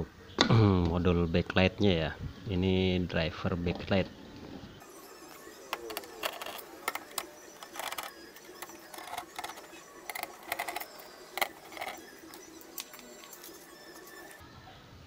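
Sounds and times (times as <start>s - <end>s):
hands handling metal and plastic parts: 5.7s - 13.6s.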